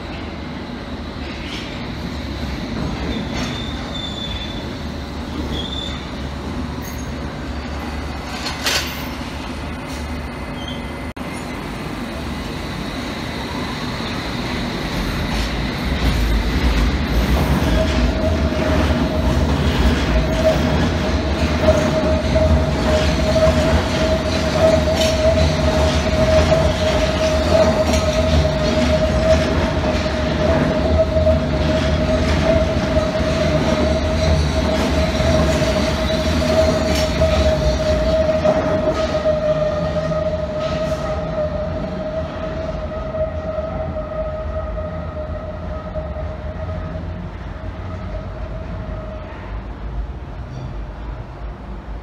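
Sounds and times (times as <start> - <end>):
train high whine: 0.0 - 52.0
train wheels clicking: 14.8 - 39.6.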